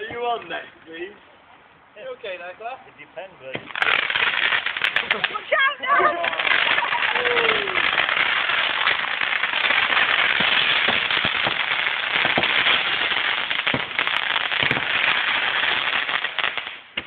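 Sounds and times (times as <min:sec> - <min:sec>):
firework crackles and pops: 0:03.5 - 0:17.0
firework fountain hissing: 0:03.5 - 0:17.0.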